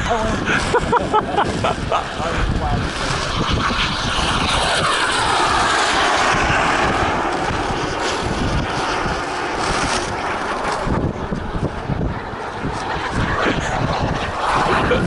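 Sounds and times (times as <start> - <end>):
model aircraft propellers buzzing: 0.0 - 15.0
wind rumble on microphone: 0.0 - 15.0.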